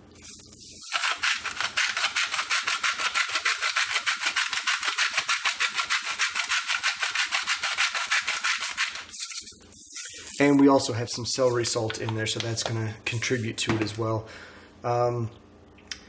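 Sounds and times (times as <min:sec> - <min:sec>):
seasoning shaker rattling: 0:00.8 - 0:10.5.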